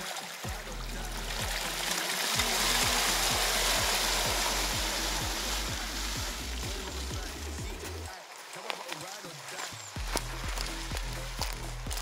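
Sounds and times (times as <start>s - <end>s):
hip-hop music with deep bass: 0.0s - 12.0s
river water rushing and splashing: 0.0s - 12.0s.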